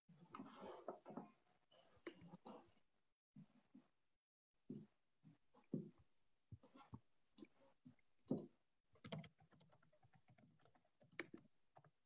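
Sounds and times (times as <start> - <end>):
typing on computer keyboard: 9.0 - 12.0.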